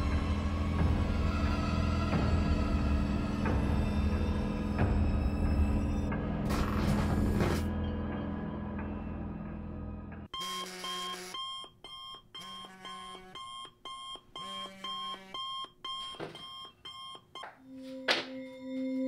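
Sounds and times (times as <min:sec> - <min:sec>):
smartphone alarm beeping melody: 0:11.2 - 0:18.8.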